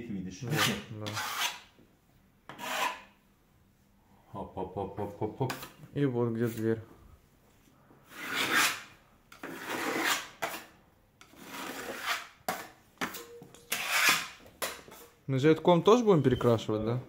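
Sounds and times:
scraping across a wall: 0:00.5 - 0:01.7, 0:08.1 - 0:12.8, 0:13.7 - 0:15.1.

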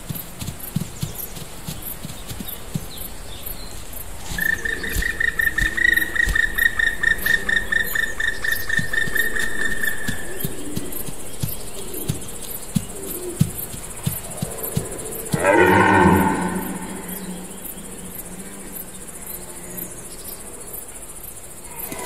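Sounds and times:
insects chirping: 0:00.0 - 0:22.0
bird calling high note: 0:15.4 - 0:17.8.

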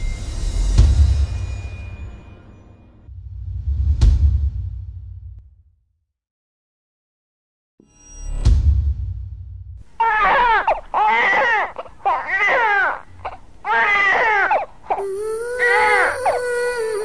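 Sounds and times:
infant crying: 0:10.0 - 0:17.0.

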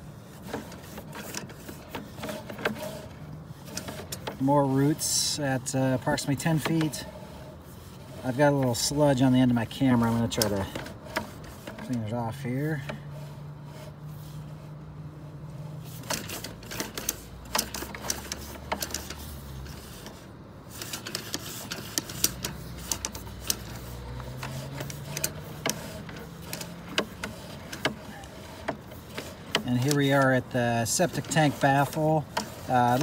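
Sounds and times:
push cable clicks and knocks: 0:20.8 - 0:30.4.

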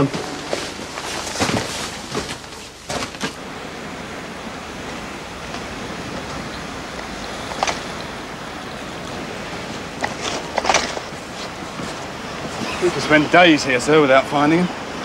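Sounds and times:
scuffs and knocks: 0:00.0 - 0:03.4
outdoor wind rushing: 0:00.0 - 0:15.0.

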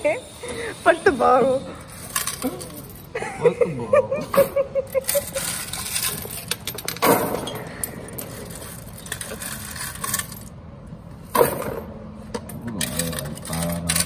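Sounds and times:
rush of sliding coins: 0:01.8 - 0:03.1, 0:05.0 - 0:06.6, 0:08.3 - 0:10.5
coins jingling on metal tray: 0:01.9 - 0:03.2, 0:04.9 - 0:07.0, 0:07.8 - 0:10.5, 0:12.8 - 0:14.0.

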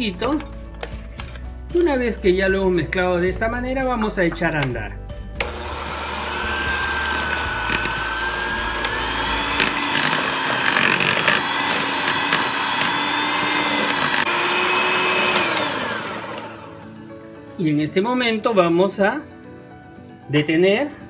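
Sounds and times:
electric hand mixer whining: 0:05.4 - 0:17.2.

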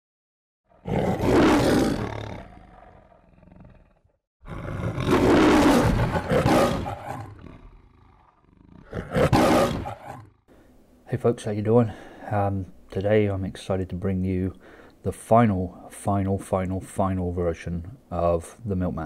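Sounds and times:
lion roaring: 0:00.7 - 0:10.5.

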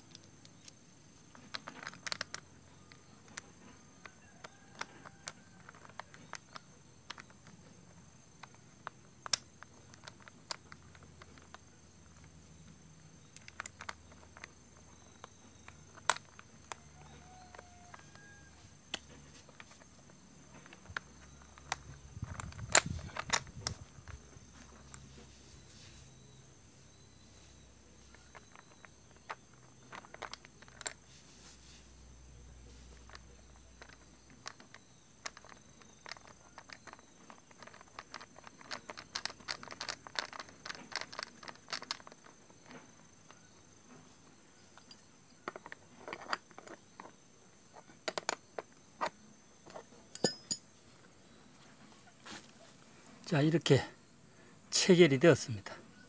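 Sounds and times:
saddle clamp clicks and rattles: 0:00.0 - 0:07.7, 0:08.4 - 0:12.3, 0:20.5 - 0:25.3, 0:28.1 - 0:31.0, 0:32.9 - 0:43.9, 0:44.8 - 0:50.7.

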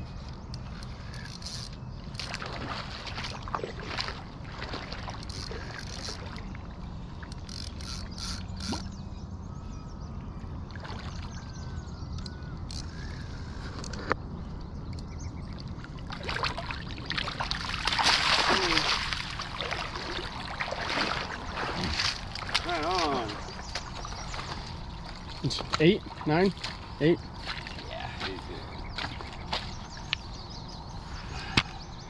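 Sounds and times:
fishing reel ratcheting clicks: 0:00.8 - 0:02.3, 0:07.4 - 0:08.9
fish splashing: 0:16.1 - 0:25.4.

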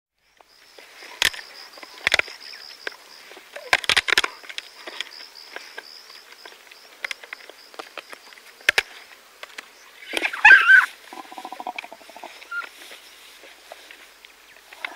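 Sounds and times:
hyena crunching bones: 0:01.2 - 0:12.6.

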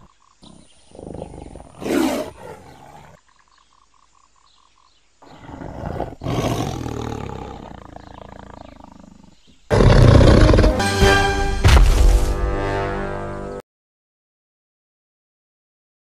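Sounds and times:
dinosaur growl and roar: 0:00.4 - 0:03.2, 0:05.2 - 0:10.8
loud music: 0:10.5 - 0:13.6.

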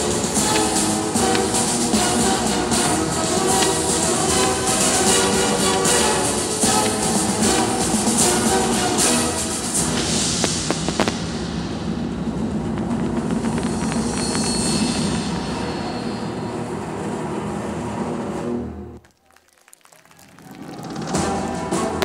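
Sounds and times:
fireworks sharp bangs: 0:00.0 - 0:16.8
fireworks launches and bursts: 0:00.0 - 0:16.9
crackling fireworks stars: 0:00.0 - 0:17.1.

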